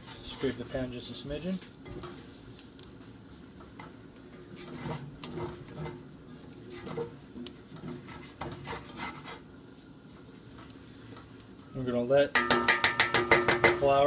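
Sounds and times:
spatula scraping a skillet: 0.0s - 13.9s
light sizzle: 0.0s - 14.0s.

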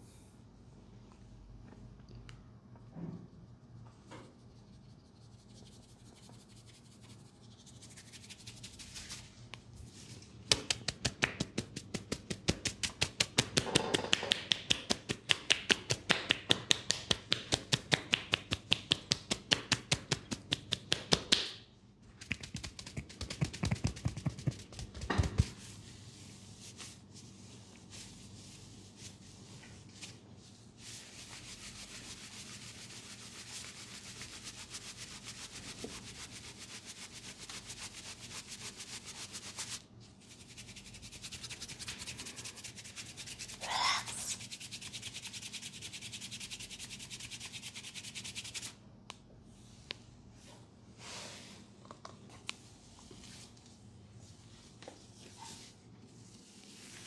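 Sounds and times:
palms rubbing skin and hair: 22.2s - 25.7s, 30.8s - 48.7s.

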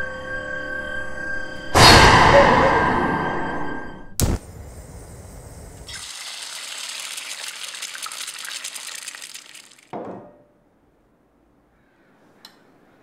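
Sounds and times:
egg frying in hot oil: 5.3s - 9.9s
plate set down on table: 9.9s - 10.4s.

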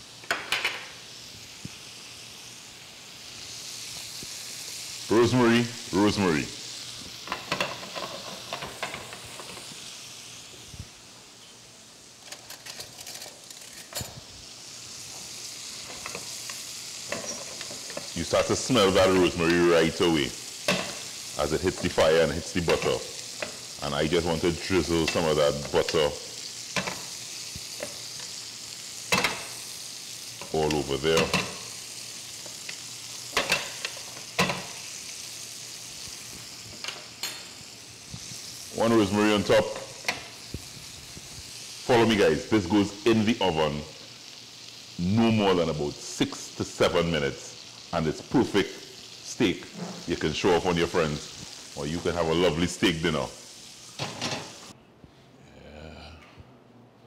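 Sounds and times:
steak sizzling in pan: 0.0s - 54.8s.

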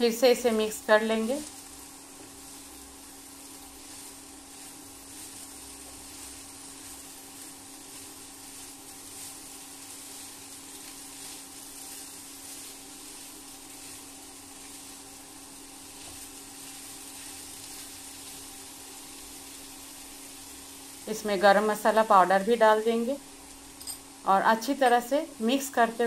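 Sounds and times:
food sizzling in a frying pan: 0.0s - 26.0s
steady hum: 0.0s - 26.0s
wooden spatula stirring: 1.4s - 18.6s.

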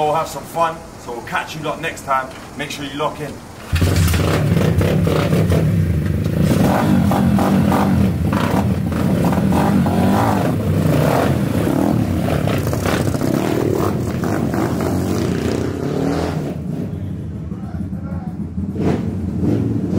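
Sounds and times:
pit bike engines revving: 1.2s - 19.9s.

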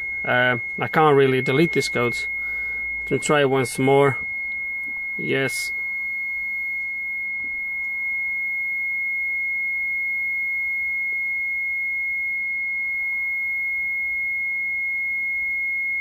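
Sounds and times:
constant high-pitched warning beep: 0.0s - 16.0s.

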